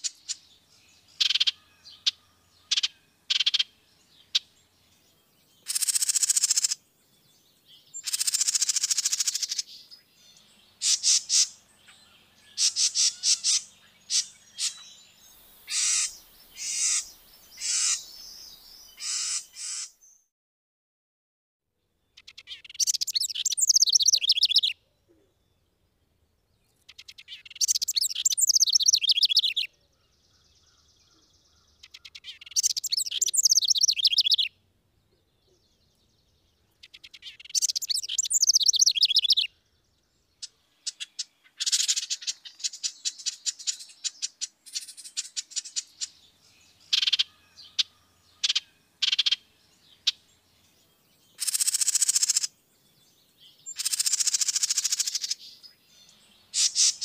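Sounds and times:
bird trilling: 1.2s - 4.5s, 5.6s - 6.8s, 8.0s - 9.8s, 10.8s - 15.0s, 15.7s - 19.9s, 22.2s - 24.8s, 26.9s - 29.7s, 30.3s - 34.5s, 36.7s - 39.5s, 40.4s - 50.3s, 51.4s - 52.5s, 53.6s - 55.8s, 56.5s - 57.0s.

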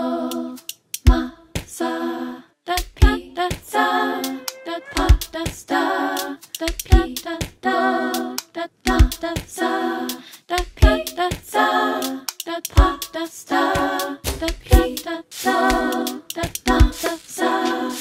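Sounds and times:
voices singing a cappella chords: 0.0s - 18.0s
sharp percussive clicks: 0.6s - 1.2s, 6.2s - 7.6s, 10.1s - 18.0s
deep low thump: 14.2s - 14.8s.

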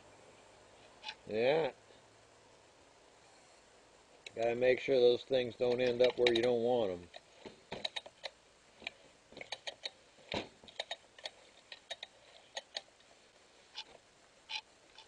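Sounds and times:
metal and plastic clicks and taps: 5.7s - 12.9s.

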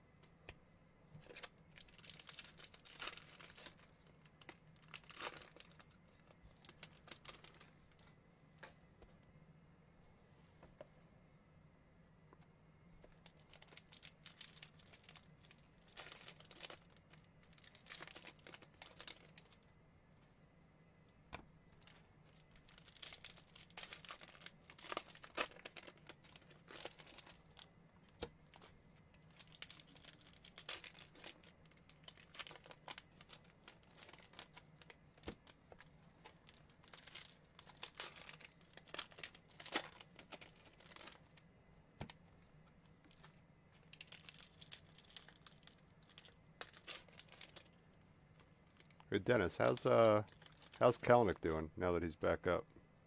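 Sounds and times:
plastic foil wrappers torn and crinkled: 1.3s - 8.1s, 13.2s - 19.6s, 21.8s - 27.7s, 28.4s - 41.4s, 43.0s - 47.8s, 48.4s - 51.6s.

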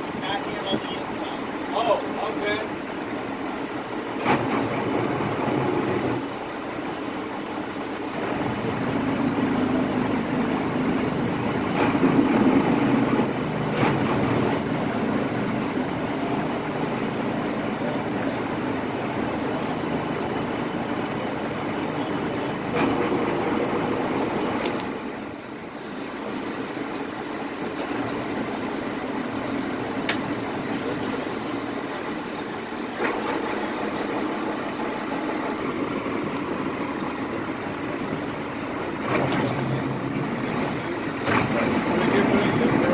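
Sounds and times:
boat engine idling: 0.0s - 42.9s.

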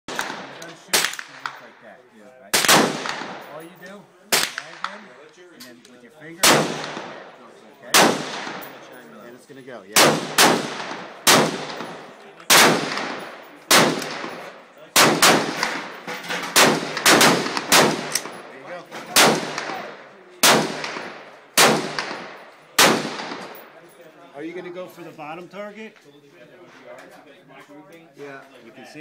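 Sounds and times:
rifle shots echoing: 0.1s - 1.7s, 2.5s - 3.6s, 4.3s - 5.2s, 6.4s - 9.0s, 10.0s - 23.8s.

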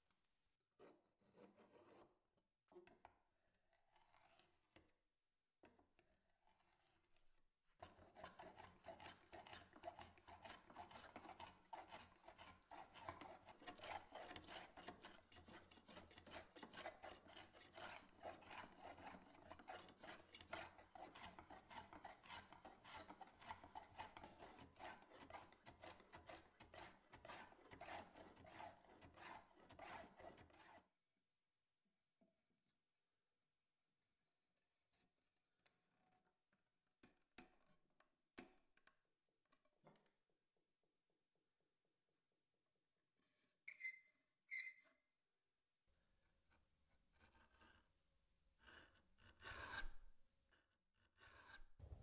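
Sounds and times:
hand plane scraping wood: 3.8s - 4.6s, 7.8s - 30.9s, 46.6s - 48.0s, 48.6s - 50.2s, 51.1s - 52.0s.

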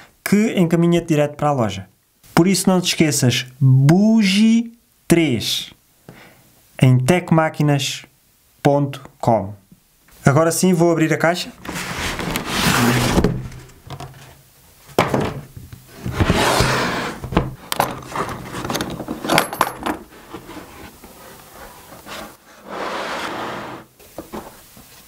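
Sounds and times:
cardboard box scraping: 11.6s - 14.3s, 15.9s - 18.7s, 20.2s - 24.0s.

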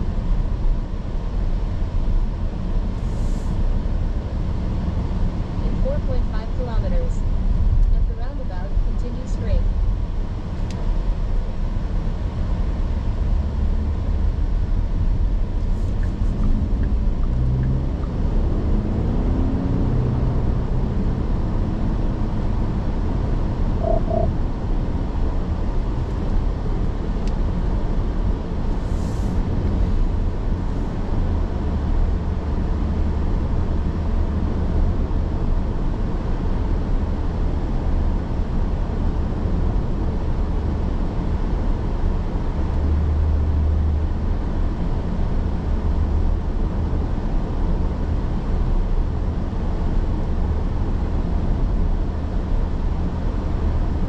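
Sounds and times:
car road and engine noise: 0.0s - 54.0s
brief double tone: 23.8s - 24.4s.

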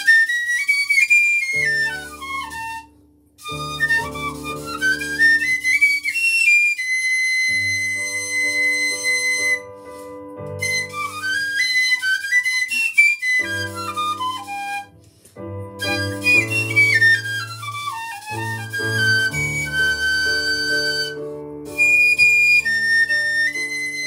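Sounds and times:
piccolo playing quick runs: 15.8s - 24.0s.

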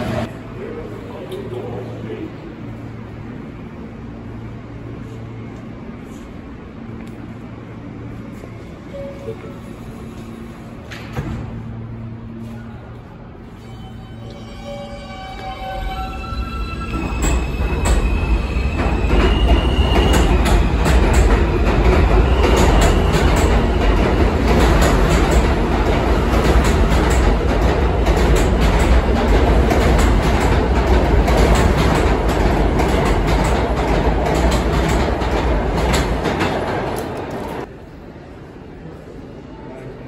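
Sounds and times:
subway train rumbling: 0.0s - 40.0s
wheels clacking over rail joints: 20.0s - 37.7s.

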